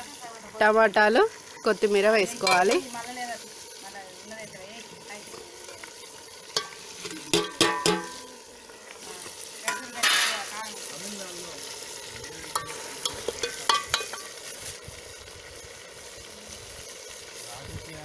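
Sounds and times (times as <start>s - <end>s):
oil sizzling: 0.0s - 18.0s
metal spoon clinking on pot: 2.4s - 2.8s, 6.5s - 8.1s, 12.5s - 14.3s.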